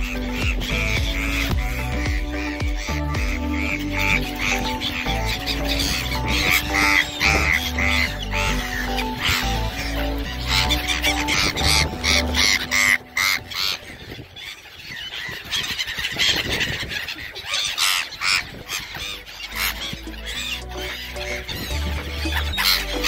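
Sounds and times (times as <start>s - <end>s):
gulls squawking: 0.0s - 23.0s
low sustained background music: 0.0s - 23.0s.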